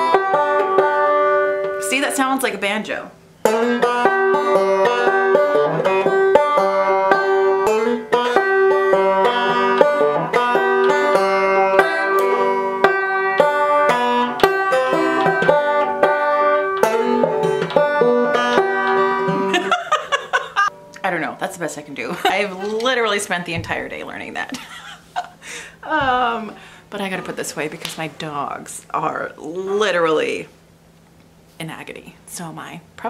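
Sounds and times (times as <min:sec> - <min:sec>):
banjo fingerpicked: 0:00.0 - 0:02.5, 0:03.4 - 0:24.3.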